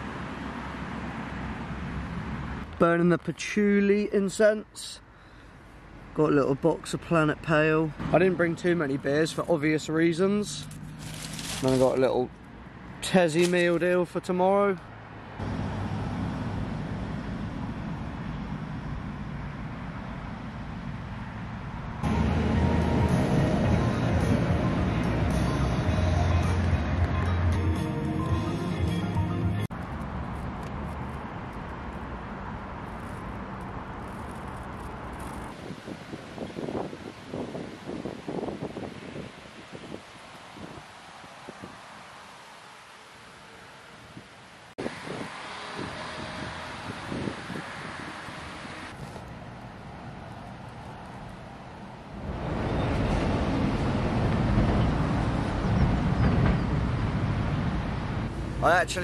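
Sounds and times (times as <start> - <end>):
road traffic noise: 0.0 - 59.0
background music: 22.0 - 29.7.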